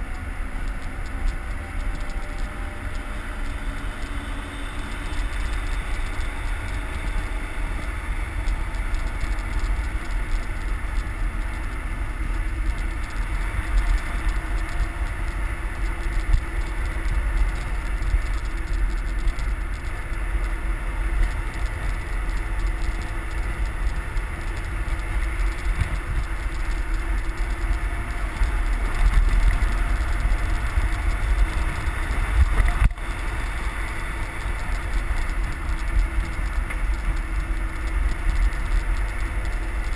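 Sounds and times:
faint engine drone: 0:00.0 - 0:39.9
road and traffic noise: 0:00.0 - 0:39.9
wind buffeting microphone: 0:00.0 - 0:39.9.

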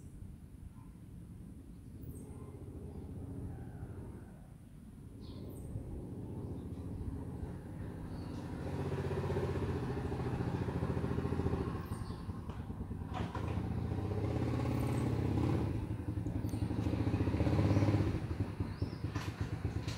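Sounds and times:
engine running with pulsing beat: 0:14.3 - 0:19.9.

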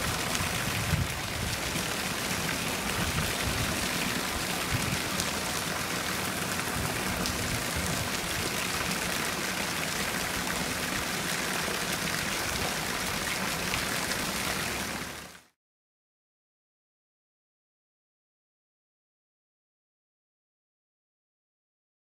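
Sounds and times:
stream splashing over rocks: 0:00.0 - 0:15.6.

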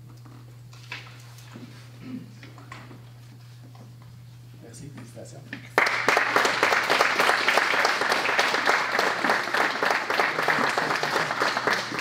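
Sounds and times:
small group applauding: 0:05.8 - 0:12.0.

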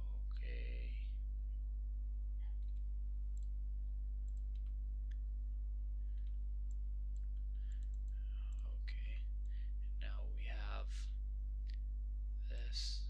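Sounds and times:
low electrical hum: 0:00.0 - 0:13.0
computer mouse clicks: 0:06.2 - 0:08.6.

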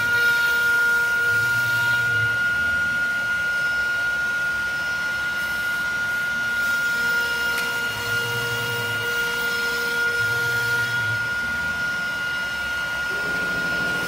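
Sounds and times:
high spindle whine: 0:10.1 - 0:14.0
low hum: 0:13.1 - 0:14.0.

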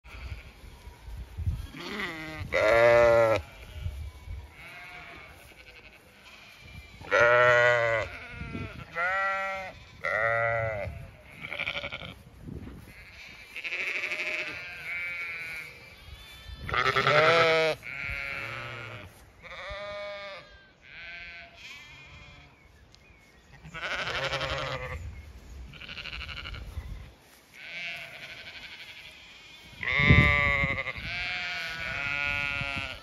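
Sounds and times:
sheep and lambs bleating: 0:00.0 - 0:22.8, 0:23.4 - 0:33.0.

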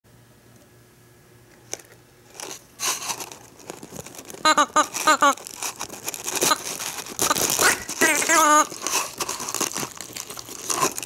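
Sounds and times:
net and packaging crinkling: 0:02.3 - 0:11.0
rubber toy squealing: 0:04.4 - 0:11.0.

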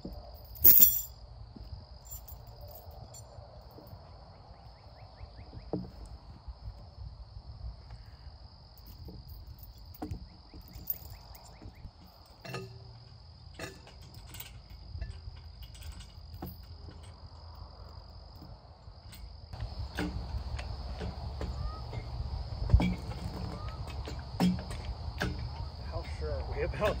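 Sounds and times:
insect chorus: 0:00.0 - 0:27.0
metal chain clinking: 0:00.3 - 0:01.1, 0:02.0 - 0:03.3, 0:08.8 - 0:11.6, 0:13.6 - 0:17.1.

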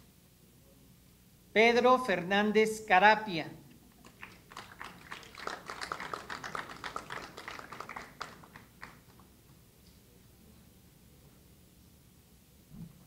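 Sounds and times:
light scattered applause: 0:04.0 - 0:09.3.

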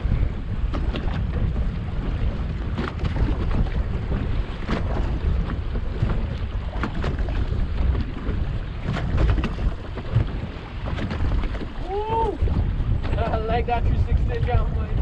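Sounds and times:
water slapping against boat hull: 0:00.0 - 0:15.0
wind rumbling on microphone: 0:00.0 - 0:15.0.

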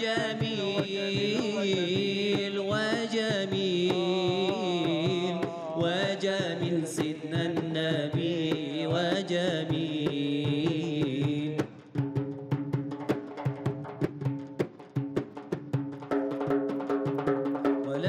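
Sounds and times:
man singing religious song: 0:00.0 - 0:11.9
hand drum strokes: 0:09.7 - 0:18.0.

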